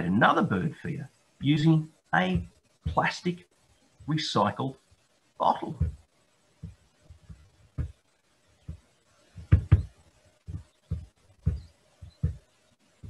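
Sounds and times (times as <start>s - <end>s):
faint steady hum: 0.0s - 13.0s
handling knocks on microphone: 6.6s - 8.0s, 9.4s - 12.4s.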